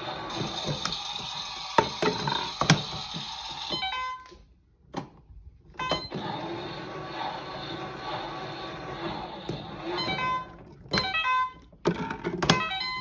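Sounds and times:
toy washing machine running: 0:00.0 - 0:04.0, 0:06.1 - 0:11.4.

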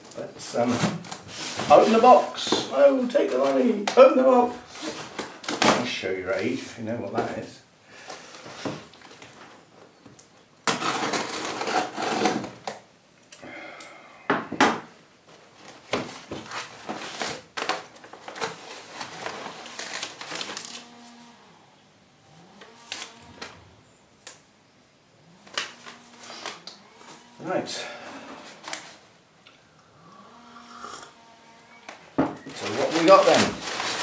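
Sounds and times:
paper rustling: 0:00.5 - 0:06.7, 0:15.3 - 0:20.8, 0:32.5 - 0:34.0.

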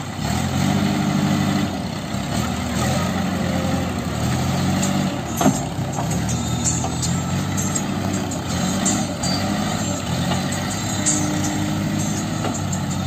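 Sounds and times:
diesel engine running: 0:00.0 - 0:13.0
sharp metal clank: 0:05.3 - 0:12.8.

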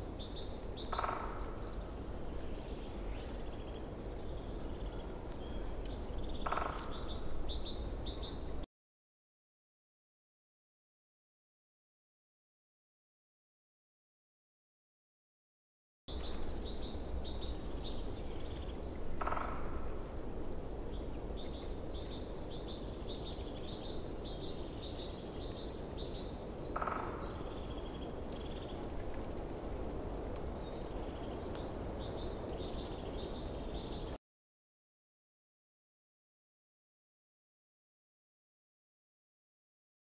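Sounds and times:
background hiss: 0:27.3 - 0:34.2.

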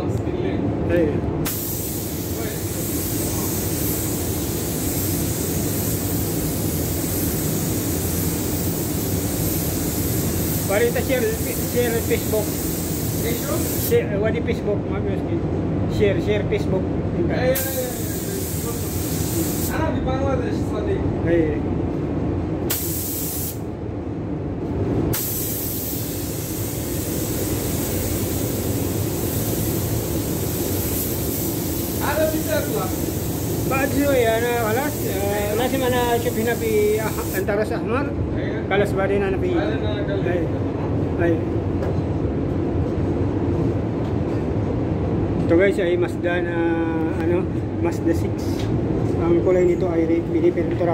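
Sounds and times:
steady low rumble: 0:00.0 - 0:25.2
paint spray gun hissing: 0:01.5 - 0:13.9, 0:17.6 - 0:19.7, 0:22.7 - 0:23.6, 0:25.2 - 0:37.5.

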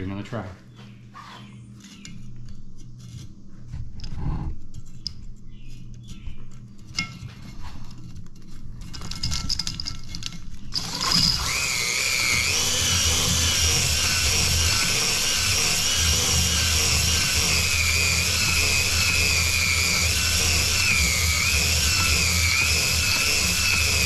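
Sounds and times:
drill whining: 0:10.7 - 0:24.0.

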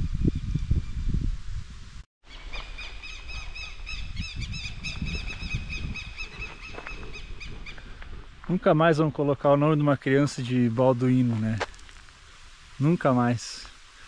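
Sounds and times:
wind rumbling on microphone: 0:00.0 - 0:02.0, 0:02.6 - 0:09.2
bird chirping: 0:02.3 - 0:07.8.

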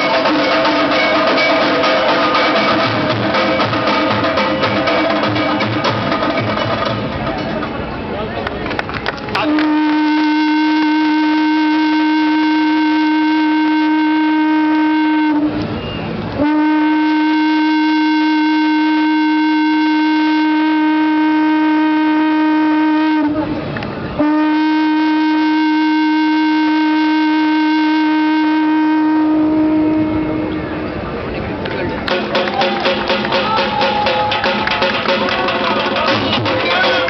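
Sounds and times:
conch shell blasts: 0:09.4 - 0:15.6, 0:16.4 - 0:23.4, 0:24.2 - 0:30.5.

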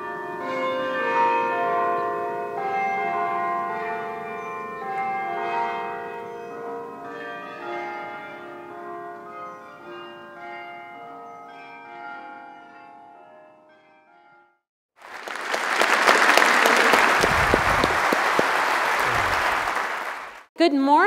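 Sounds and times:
bells chiming: 0:00.0 - 0:14.4.

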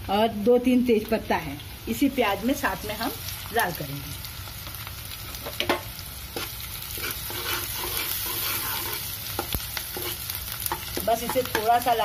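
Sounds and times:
onion sizzling in hot oil: 0:00.0 - 0:12.0
spatula stirring: 0:06.3 - 0:11.8
spatula knocking on pan: 0:10.7 - 0:11.8.

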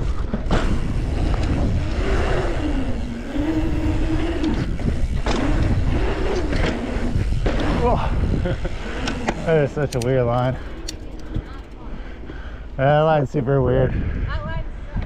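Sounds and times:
wind on microphone: 0:00.0 - 0:11.8, 0:13.0 - 0:15.0
bike tyres humming on pavement: 0:00.0 - 0:15.0.

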